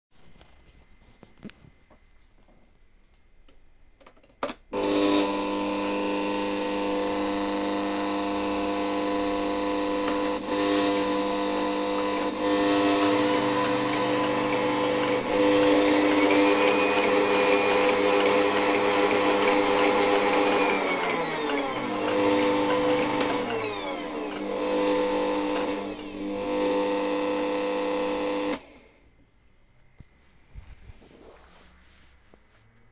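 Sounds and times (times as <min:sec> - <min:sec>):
stand mixer motor whining: 0:04.8 - 0:28.9.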